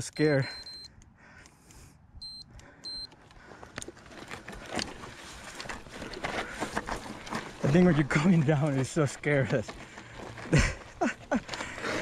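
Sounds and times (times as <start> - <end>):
short high electronic beeps: 0.1 - 0.9
gravel crunching underfoot: 3.1 - 12.0.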